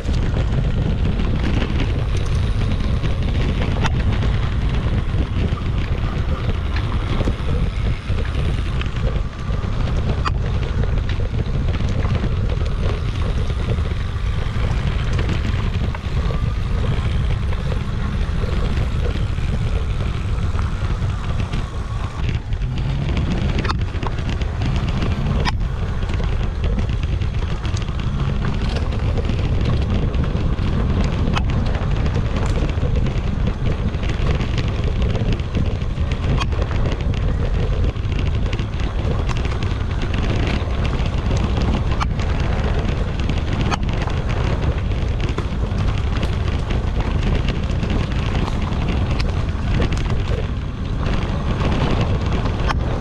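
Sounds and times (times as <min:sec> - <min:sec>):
tyres rumbling on dirt: 0:00.0 - 0:53.0
wind buffeting microphone: 0:00.0 - 0:53.0.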